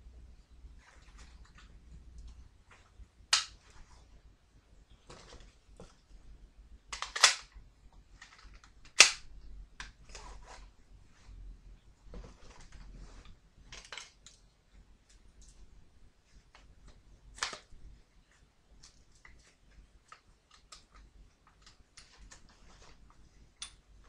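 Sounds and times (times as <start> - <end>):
guns and gear clicking: 7.0 - 7.6.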